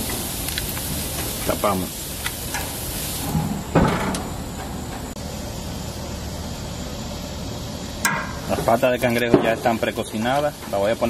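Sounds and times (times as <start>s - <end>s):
food sizzling on a grill: 0.0s - 11.0s
metal grill lid thud: 3.3s - 4.3s, 8.0s - 9.8s.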